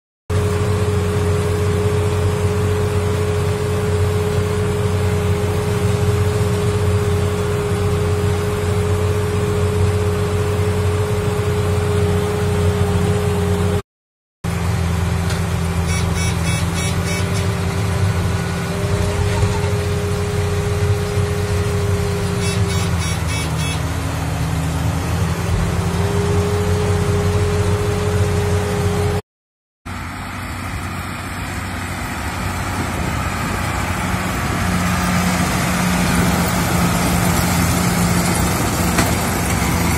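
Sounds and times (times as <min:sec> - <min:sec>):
tractor diesel engine under load: 0:00.3 - 0:13.8, 0:14.4 - 0:29.2, 0:29.9 - 0:39.9.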